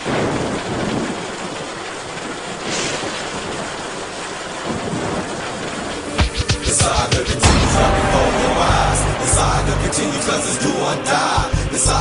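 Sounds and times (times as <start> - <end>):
steady rain falling: 0.0 - 12.0
low rumble: 6.2 - 12.0.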